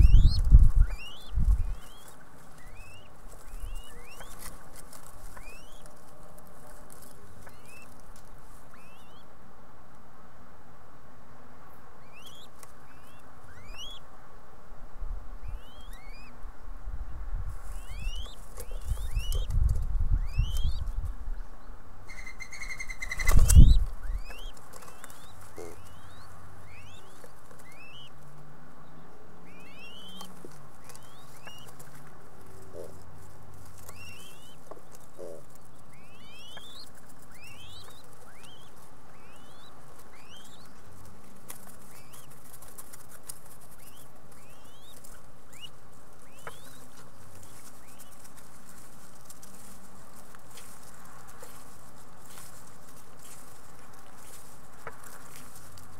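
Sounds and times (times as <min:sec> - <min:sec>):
dove wing whistle: 0:00.0 - 0:06.0, 0:07.4 - 0:08.0, 0:08.7 - 0:09.2, 0:12.0 - 0:14.0, 0:15.4 - 0:16.4, 0:17.7 - 0:21.0, 0:22.1 - 0:28.2, 0:29.5 - 0:31.8, 0:33.8 - 0:40.9, 0:41.5 - 0:48.3
short rising bird chirps: 0:22.1 - 0:28.1.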